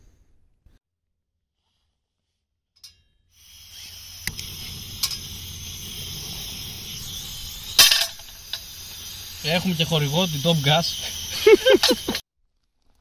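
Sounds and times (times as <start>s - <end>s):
gas stove hissing: 3.4s - 12.2s
sharp clicks: 3.8s - 5.3s.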